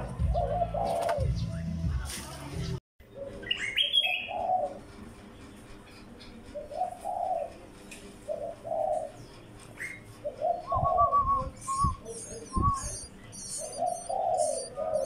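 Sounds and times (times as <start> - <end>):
dove cooing: 0.0 - 1.4, 3.1 - 4.9, 6.5 - 7.6, 8.2 - 9.2, 9.9 - 15.0
small birds chirping: 2.6 - 15.0.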